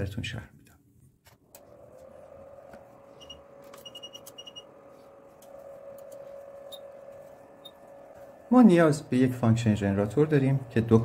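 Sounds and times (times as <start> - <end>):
cooling fan hum and whine: 1.4 - 11.0.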